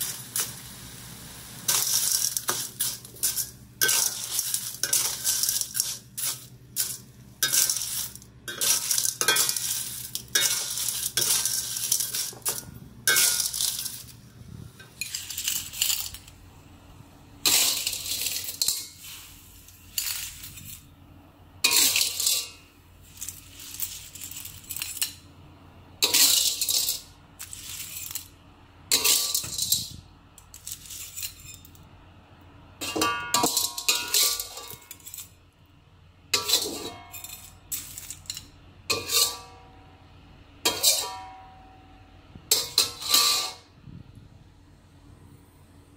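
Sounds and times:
clam shells clattering in wok: 0.0s - 0.8s, 1.5s - 14.2s, 14.8s - 16.4s, 17.5s - 20.9s, 21.6s - 25.3s, 26.0s - 31.8s, 32.8s - 35.4s, 36.4s - 39.6s, 42.5s - 43.6s
metal spatula scraping: 1.6s - 16.3s, 17.4s - 20.9s, 21.6s - 25.2s, 26.0s - 31.8s, 32.8s - 35.4s, 36.3s - 39.8s, 40.6s - 41.5s, 42.5s - 43.7s.

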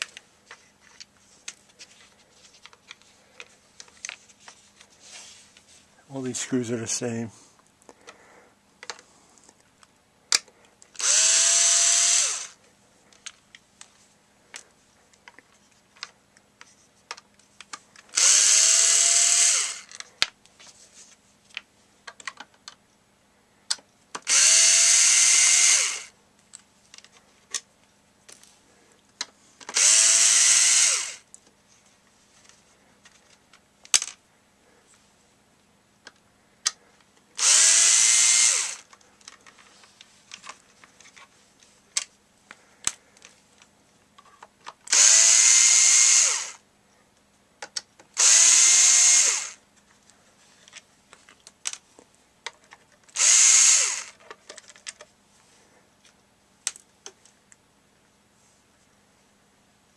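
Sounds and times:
cordless drill motor whine: 11.0s - 12.6s, 18.1s - 19.9s, 24.3s - 26.1s, 29.7s - 31.2s, 37.4s - 38.9s, 44.9s - 46.6s, 48.2s - 49.6s, 53.2s - 54.2s
clicks of screws and handling: 32.4s - 34.2s, 54.0s - 55.1s.

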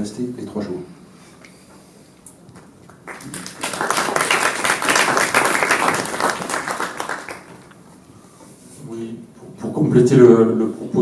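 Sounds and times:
audience applauding: 2.9s - 7.8s.

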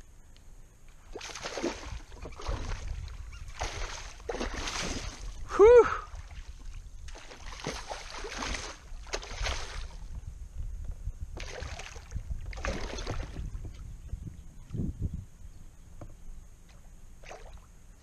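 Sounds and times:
steady low rumble: 6.1s - 18.0s.

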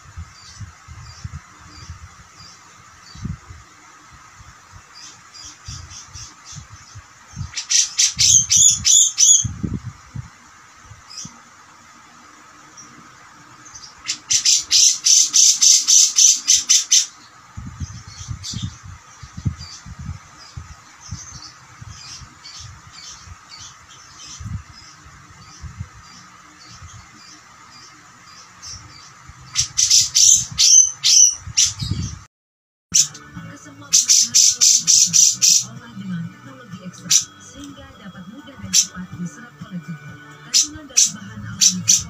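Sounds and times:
bird chattering calls: 5.0s - 9.5s, 13.8s - 17.3s, 28.4s - 32.1s, 33.9s - 35.7s, 40.5s - 42.0s.

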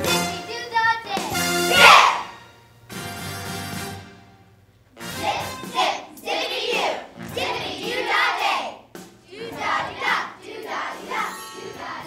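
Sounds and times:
children speaking: 0.0s - 2.3s, 5.2s - 12.0s.

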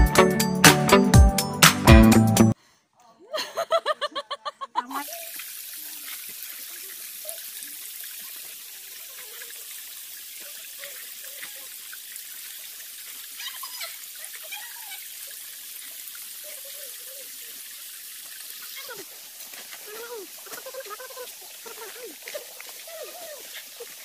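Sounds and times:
forest stream rushing: 5.0s - 24.0s.

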